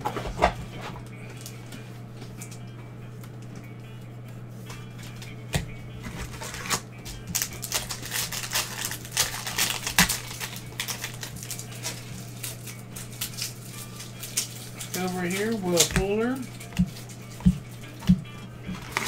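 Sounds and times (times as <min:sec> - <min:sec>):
steady low hum: 0:00.0 - 0:19.0
card pack crinkling and rustling: 0:06.0 - 0:17.2, 0:18.7 - 0:19.0.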